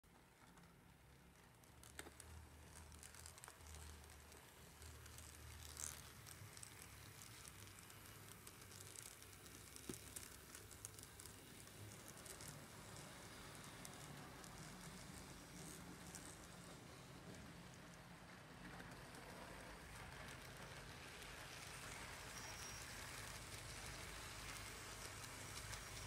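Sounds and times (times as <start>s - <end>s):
light clicks and crackles: 0.1s - 26.0s
model train humming: 9.3s - 26.0s.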